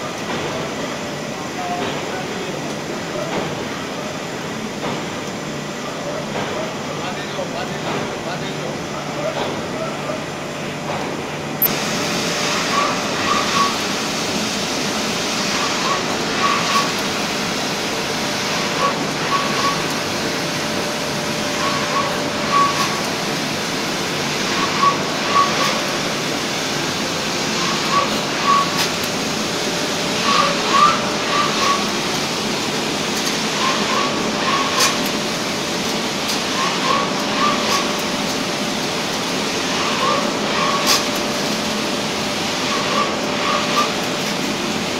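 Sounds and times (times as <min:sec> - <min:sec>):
short high machine squeaks: 0:12.7 - 0:13.8, 0:21.6 - 0:23.0, 0:24.6 - 0:25.8.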